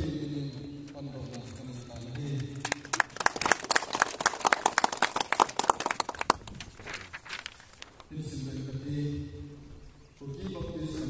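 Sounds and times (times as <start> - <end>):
small group clapping: 2.2 - 6.7.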